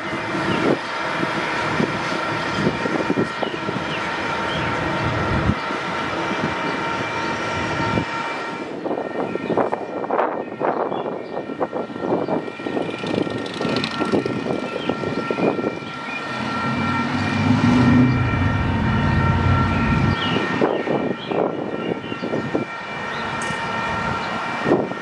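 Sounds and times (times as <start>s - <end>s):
low steady pitched tone: 12.4s - 22.4s.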